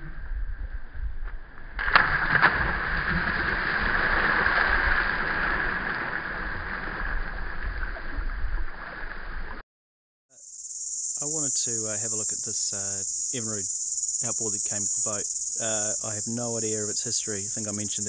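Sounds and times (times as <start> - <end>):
low rumble: 0.0 - 9.6
bodies splashing into water: 1.8 - 9.6
splashing shallow water: 1.8 - 9.6.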